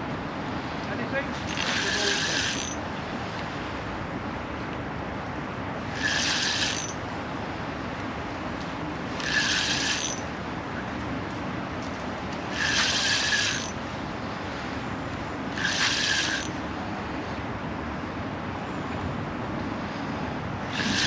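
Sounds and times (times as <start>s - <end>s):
fishing reel whirring: 1.4s - 2.8s, 5.8s - 7.0s, 9.1s - 10.3s, 12.5s - 13.8s, 15.5s - 16.6s, 20.7s - 21.0s.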